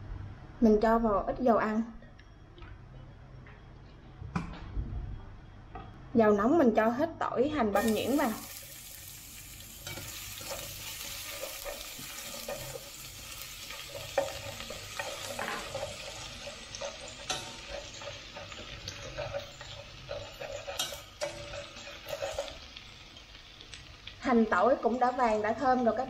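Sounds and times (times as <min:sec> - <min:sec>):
garlic sizzling in oil: 0:07.8 - 0:26.0
wooden utensil scraping pot: 0:13.7 - 0:22.6.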